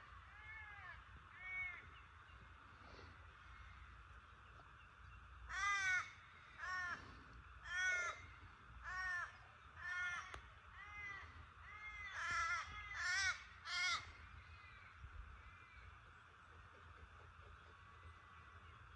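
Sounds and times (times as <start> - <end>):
crow cawing: 0.3 - 1.9, 5.5 - 15.8.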